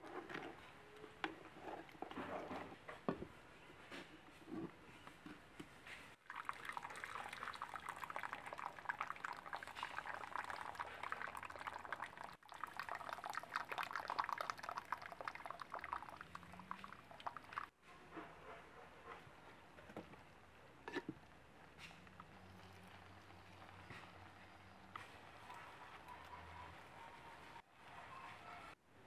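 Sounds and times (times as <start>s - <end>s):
water pouring and splashing: 6.2s - 17.8s.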